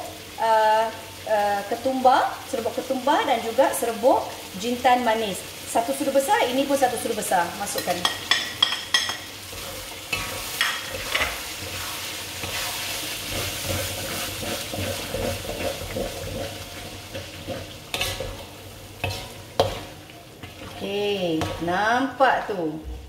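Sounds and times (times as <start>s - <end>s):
paste sizzling in oil: 0.0s - 21.9s
utensil scraping a pan: 9.5s - 21.7s.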